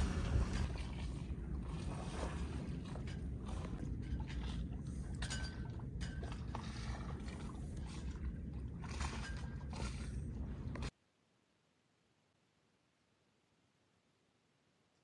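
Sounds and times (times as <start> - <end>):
wind and water rumble: 0.0 - 10.9.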